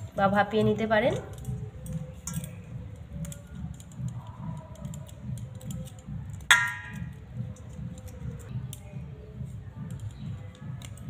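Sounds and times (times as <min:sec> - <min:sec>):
metallic clang of steel bowl: 0:06.5 - 0:07.1.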